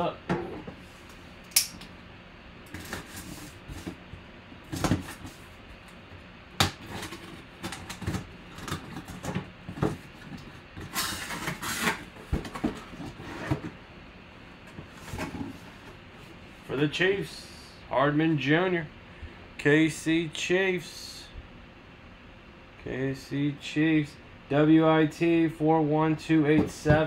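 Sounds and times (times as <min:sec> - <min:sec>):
cardboard rustling scrape: 0:10.8 - 0:13.8.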